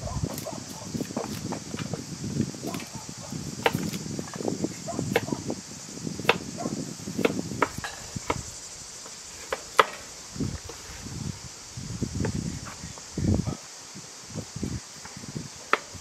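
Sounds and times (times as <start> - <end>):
high insect drone: 0.0 - 16.0
knife crunching through stalks: 0.3 - 1.5, 3.6 - 4.1.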